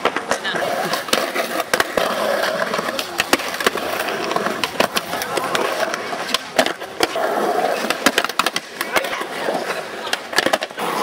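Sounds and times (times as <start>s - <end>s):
skateboard wheels rolling on concrete: 0.0s - 11.0s
skateboards clacking on ground: 0.0s - 11.0s.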